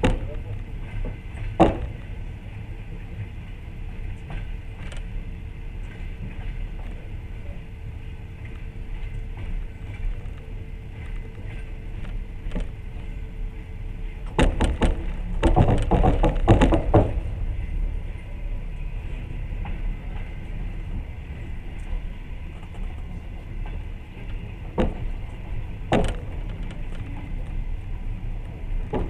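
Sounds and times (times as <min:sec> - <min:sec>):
loud sharp clattering knocks: 0:00.0 - 0:00.4, 0:01.0 - 0:02.0, 0:14.3 - 0:17.3, 0:24.8 - 0:25.1, 0:25.9 - 0:26.7
train running rumble: 0:00.0 - 0:29.0.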